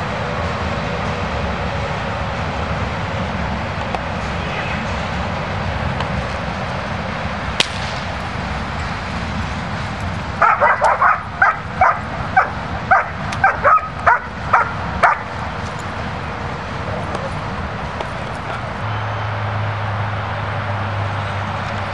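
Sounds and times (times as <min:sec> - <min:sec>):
dog barking: 0:10.4 - 0:15.4.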